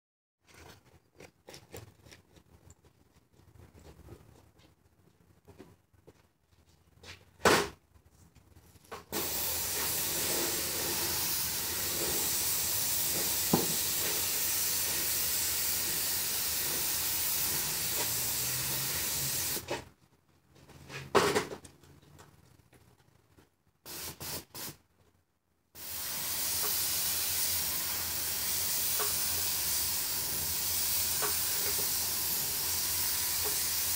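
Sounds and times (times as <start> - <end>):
paint sprayer hissing: 9.1 - 19.7, 23.8 - 24.8, 25.8 - 33.9.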